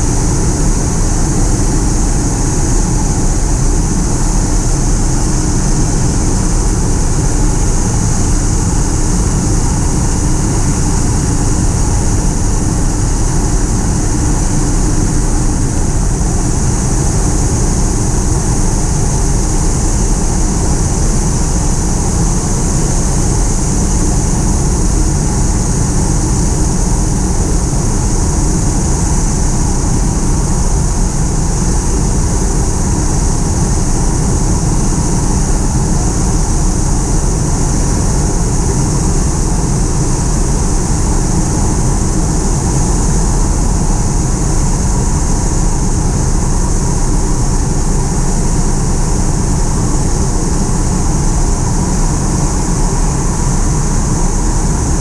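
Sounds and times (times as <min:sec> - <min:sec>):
aircraft engine and propeller drone: 0:00.0 - 0:55.0
high even whine: 0:00.0 - 0:55.0
rushing air: 0:00.0 - 0:55.0.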